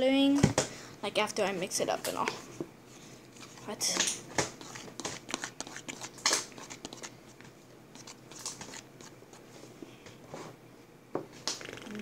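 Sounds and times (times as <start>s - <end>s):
slime stirred sticky clicks: 4.0s - 7.1s, 8.0s - 9.2s.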